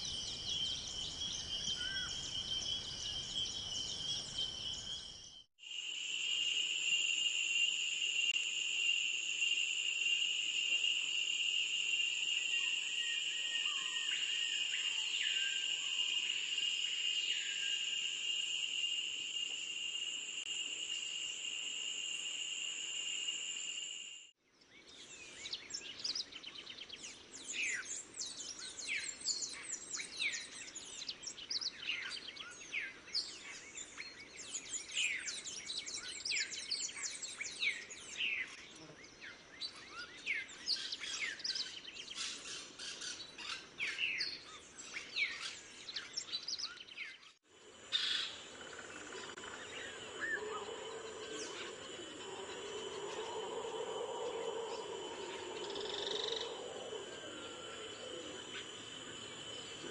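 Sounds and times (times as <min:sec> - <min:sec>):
shrill insect buzz: 0:05.7 - 0:24.3, 0:47.8 - 0:59.9
chirping bird calls: 0:47.9 - 0:59.9.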